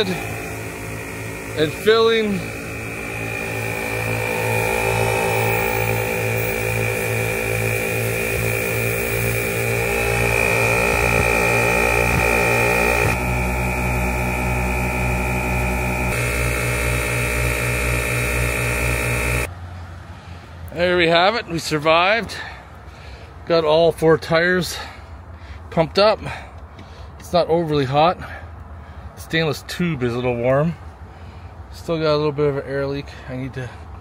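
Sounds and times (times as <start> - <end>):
air compressor chugging and whining: 0.0 - 19.5.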